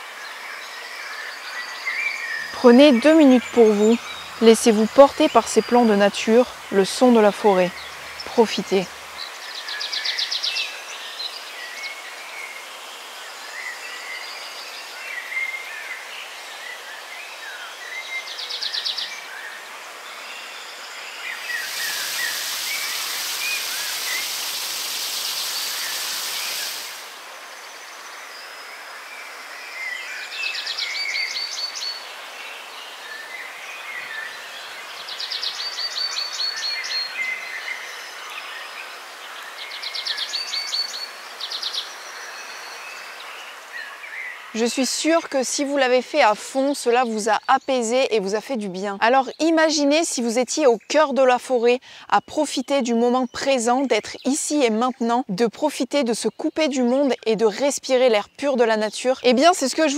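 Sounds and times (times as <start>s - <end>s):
birds chirping: 1.2s - 12.6s, 13.5s - 28.6s
water falling: 21.4s - 27.4s.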